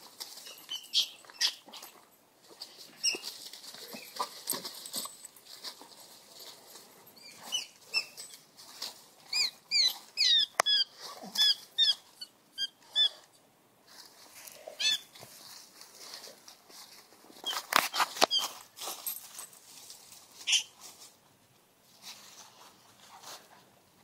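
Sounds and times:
squirrel squealing: 0.4 - 1.6, 9.3 - 13.2, 14.8 - 15.1, 20.5 - 20.7
dogs scuffling through dry leaves: 2.4 - 10.1, 14.0 - 21.2.

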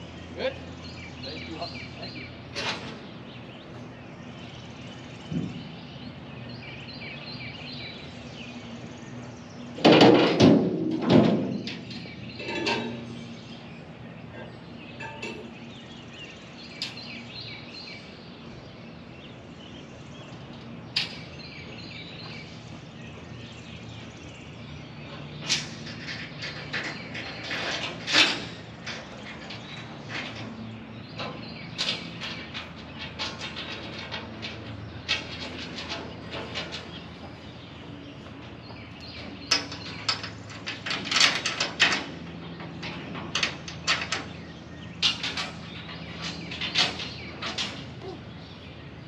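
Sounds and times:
small birds chirping: 0.0 - 10.3, 11.4 - 49.0
loud knocks and clatter: 9.8 - 13.1.

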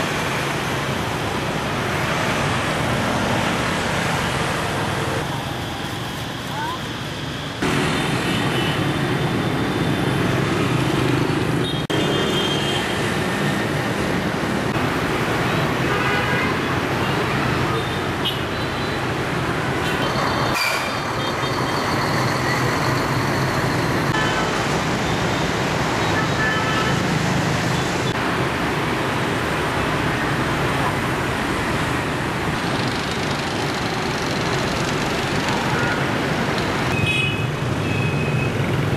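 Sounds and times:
motorbikes passing: 0.0 - 6.8, 7.6 - 18.2, 26.9 - 38.9
cars passing: 0.0 - 18.4.

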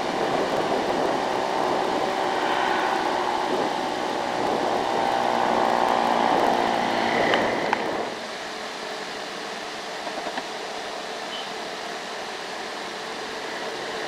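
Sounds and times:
motorbike engine: 0.0 - 8.2
traffic hum: 0.0 - 14.0.

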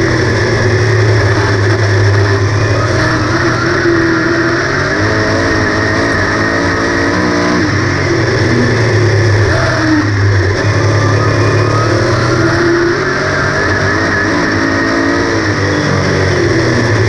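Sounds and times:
race car engine running hard: 0.0 - 17.0.

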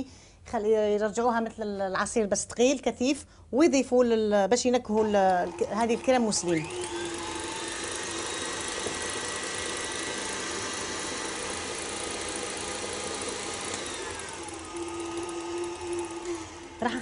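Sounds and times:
stand mixer whirring: 5.0 - 17.0.

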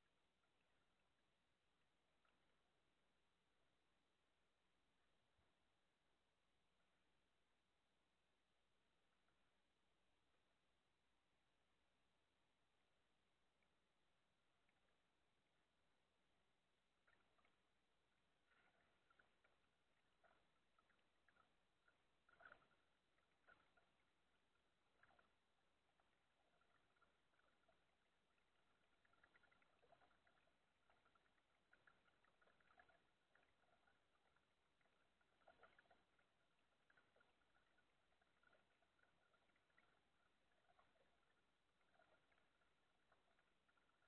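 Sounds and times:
faint ticks: 17.0 - 44.0.

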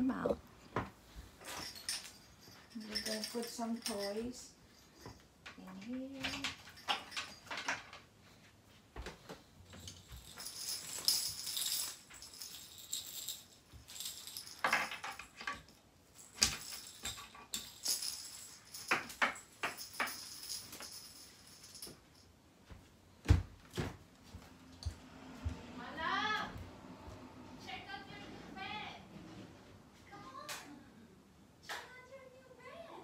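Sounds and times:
baby rattle toys jingling: 1.4 - 7.8, 9.8 - 22.0.

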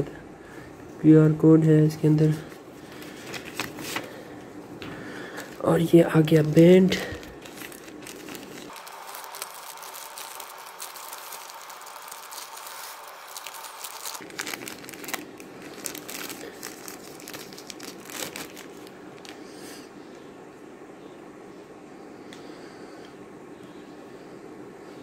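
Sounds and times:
plastic pouch crinkling: 2.9 - 4.2, 5.4 - 19.4.

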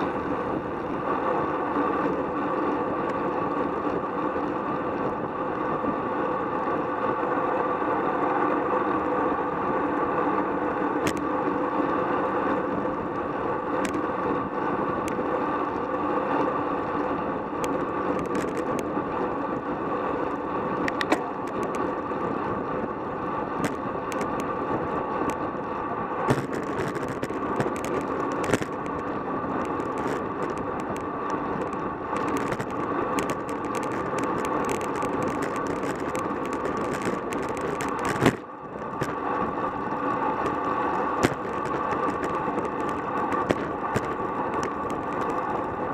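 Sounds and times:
wind and road noise: 0.0 - 45.9
sharp ticks and clicks: 20.8 - 22.0, 23.6 - 24.5, 26.3 - 39.2, 39.8 - 45.7.

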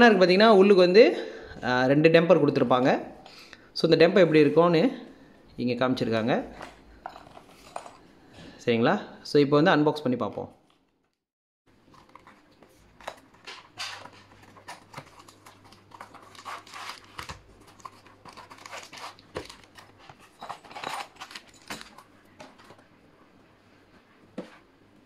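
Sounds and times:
plastic packaging crinkling: 11.8 - 22.7.

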